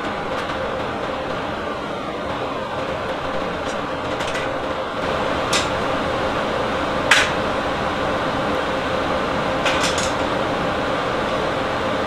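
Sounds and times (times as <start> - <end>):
steady background hum: 0.0 - 12.0
metal parts clicking together: 3.6 - 4.6, 5.5 - 5.9, 7.1 - 7.4, 9.6 - 10.3.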